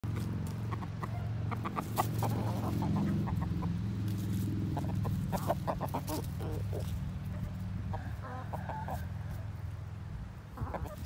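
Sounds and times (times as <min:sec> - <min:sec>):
chickens clucking: 0:00.0 - 0:11.0.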